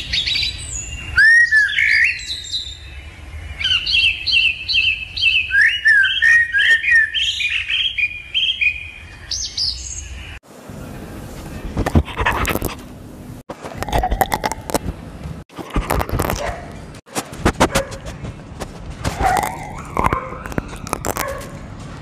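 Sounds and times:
bird chirping and whistling: 0.0 - 3.0, 3.6 - 10.2.

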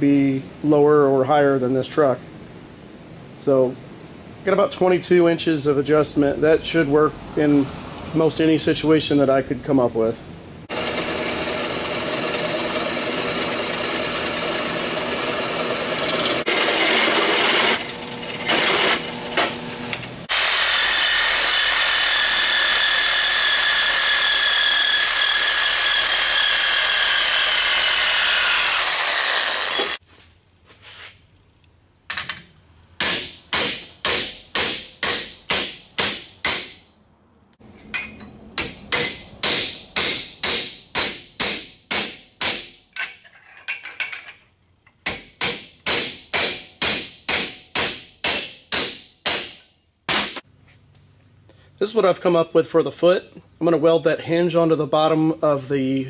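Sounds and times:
drill press grinding steel pipe: 10.7 - 30.0
hammer striking steel plate: 33.0 - 36.9, 37.8 - 43.1, 45.1 - 50.4.

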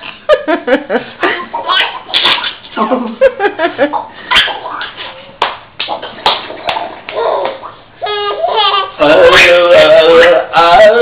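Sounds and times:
baby laughing: 1.4 - 2.6, 3.9 - 5.2, 5.8 - 10.2.

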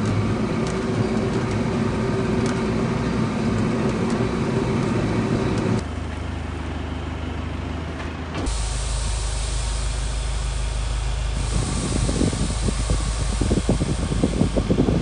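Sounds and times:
tractor engine running: 0.0 - 15.0
steady hiss: 8.5 - 15.0.

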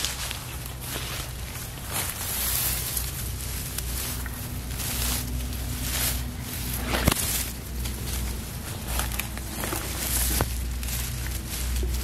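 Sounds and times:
footsteps through grass: 0.0 - 12.0
steady low rumble: 0.0 - 12.0.

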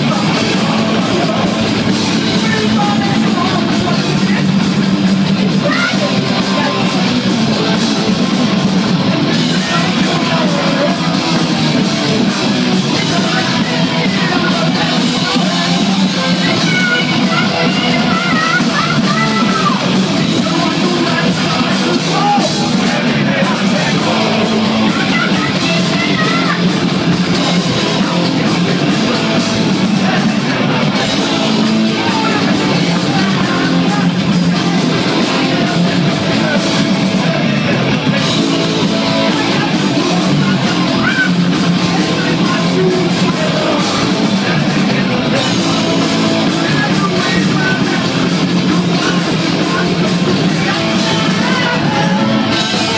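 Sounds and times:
person singing: 0.0 - 4.8, 5.4 - 52.9
electric guitar: 0.0 - 52.9.

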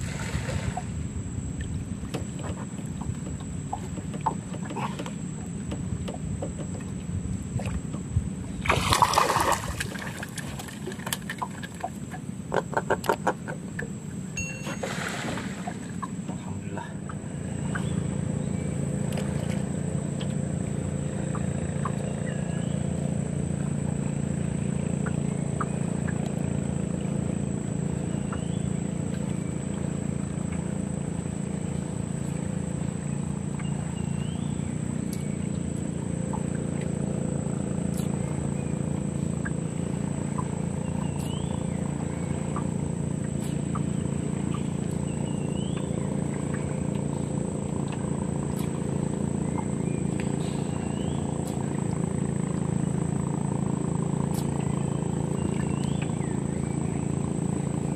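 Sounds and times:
water splashes: 0.0 - 18.2, 34.9 - 57.9
boat engine running: 0.0 - 57.9.

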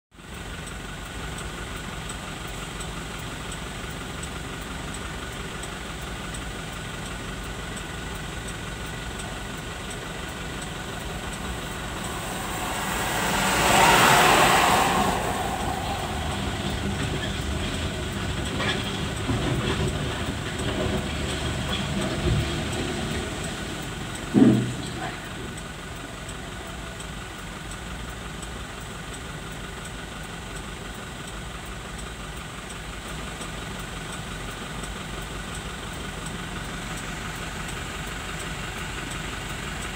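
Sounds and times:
diesel engine running: 0.2 - 39.9
loud noisy swell: 10.2 - 20.4.

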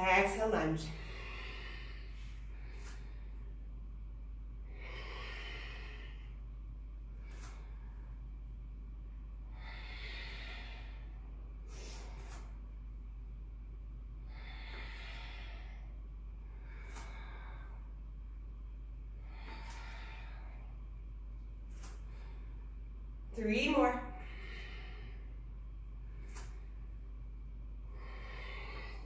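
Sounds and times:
steady low hum: 0.0 - 29.0
woman breathing hard: 0.9 - 3.6, 4.6 - 6.6, 9.4 - 12.6, 14.2 - 18.1, 19.2 - 21.0, 24.1 - 27.0, 27.9 - 29.0.

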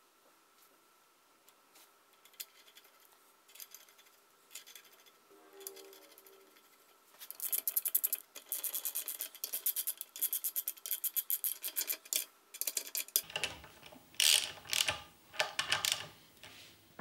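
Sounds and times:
metal scraping rubs: 3.6 - 7.8
socket ratchet clicking: 14.2 - 16.1.

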